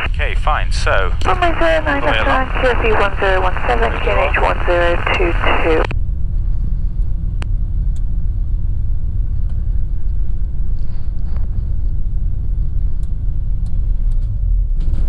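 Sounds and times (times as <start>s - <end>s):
aircraft engine idling: 0.0s - 5.8s.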